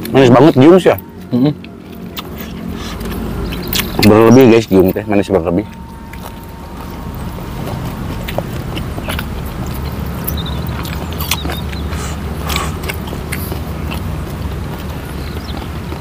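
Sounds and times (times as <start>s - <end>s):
chewing food: 0.0s - 16.0s
steady low rumble: 0.0s - 16.0s
wet lip smacks: 8.8s - 15.7s.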